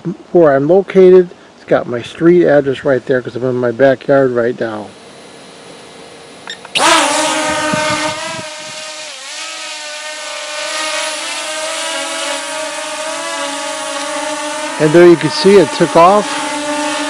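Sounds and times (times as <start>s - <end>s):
drone propellers whining: 4.7s - 17.0s.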